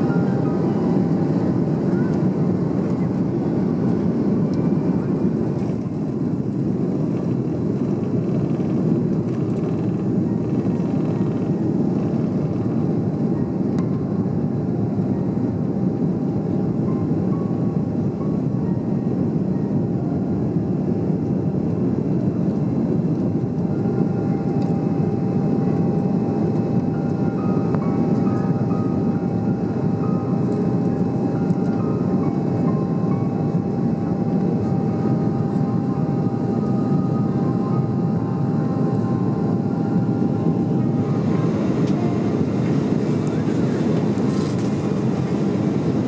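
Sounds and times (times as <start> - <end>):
jet engine whine: 0.0 - 46.0
jet engines roaring: 0.0 - 46.0.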